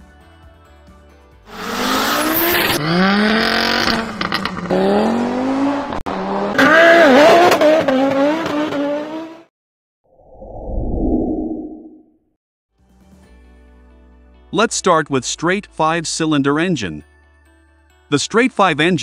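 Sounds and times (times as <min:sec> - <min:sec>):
car engines revving hard: 0:01.5 - 0:09.5.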